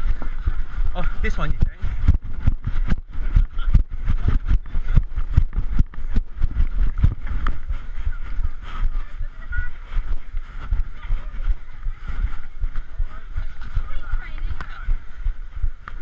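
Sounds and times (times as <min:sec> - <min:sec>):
clothing rustling on microphone: 0:00.0 - 0:16.0
faint voices: 0:00.0 - 0:16.0
running footsteps thudding: 0:00.0 - 0:16.0.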